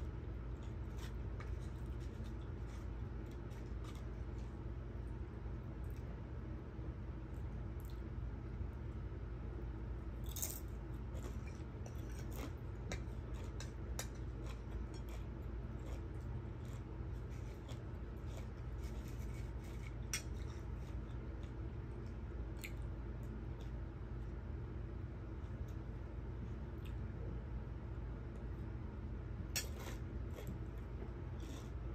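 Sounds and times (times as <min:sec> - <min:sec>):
steady low hum: 0:00.0 - 0:31.9
chewing with crunches: 0:00.5 - 0:04.6, 0:10.2 - 0:23.8, 0:29.5 - 0:31.9.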